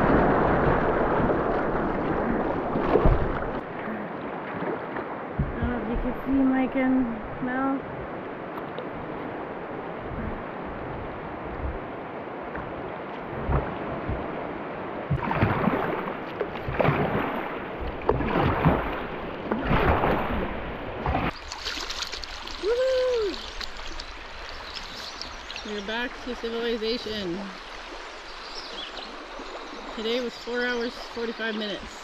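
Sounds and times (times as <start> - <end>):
wind on microphone: 0.0 - 21.4
paddle splashes: 0.0 - 32.0
river water rushing: 0.0 - 32.0.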